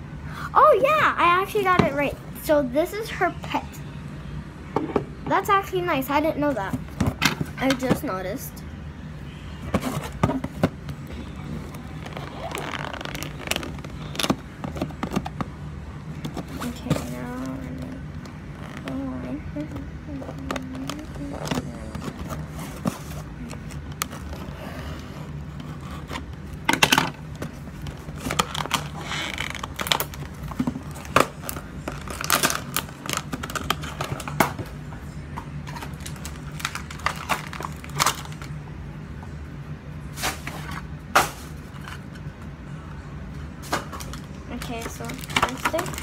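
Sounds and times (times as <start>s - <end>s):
plastic packaging crinkling: 11.6s - 15.2s, 27.7s - 34.4s, 35.7s - 38.6s, 44.0s - 46.0s.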